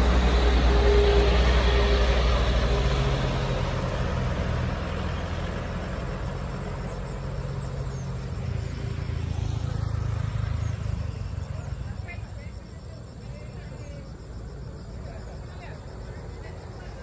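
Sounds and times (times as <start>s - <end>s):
motorcycle approaching: 0.0s - 14.3s
car passing: 0.0s - 17.0s
truck diesel engine: 0.0s - 17.0s.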